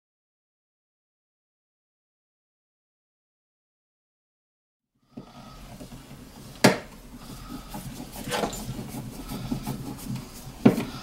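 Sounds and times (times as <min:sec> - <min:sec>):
faint scraping and handling: 0:05.2 - 0:11.0.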